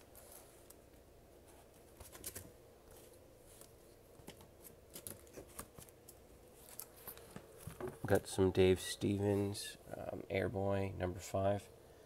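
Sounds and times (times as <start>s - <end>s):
comic books rustling: 1.4s - 8.4s.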